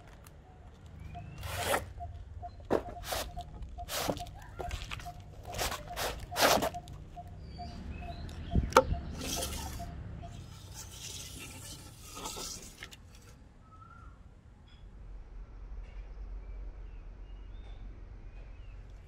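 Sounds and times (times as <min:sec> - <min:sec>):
tape measure scraping: 0:01.4 - 0:02.0, 0:02.8 - 0:04.3, 0:05.0 - 0:07.0, 0:09.1 - 0:13.4.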